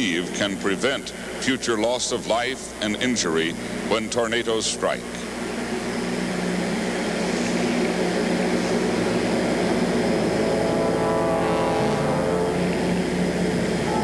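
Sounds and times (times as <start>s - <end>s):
low droning hum: 0.0s - 14.0s
chord of held tones: 10.2s - 14.0s.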